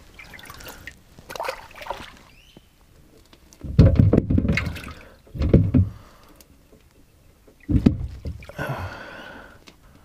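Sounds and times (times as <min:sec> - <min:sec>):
water splashing in a livewell: 0:00.0 - 0:02.4, 0:03.6 - 0:06.1, 0:07.6 - 0:09.1
fish bumping in water: 0:03.6 - 0:06.1, 0:07.6 - 0:08.6.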